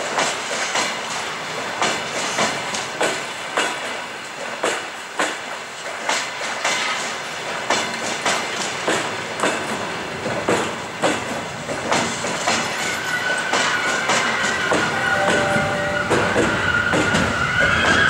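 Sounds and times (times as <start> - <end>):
train wheels clacking over rail joints: 0.0 - 15.0
high squeal: 14.5 - 18.0.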